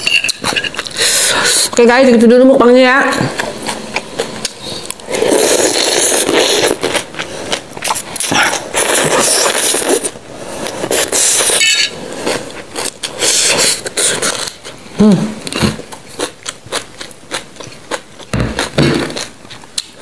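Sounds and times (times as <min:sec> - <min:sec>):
chewing: 0:03.3 - 0:14.8, 0:15.4 - 0:20.0
noodles being slurped: 0:04.4 - 0:14.6.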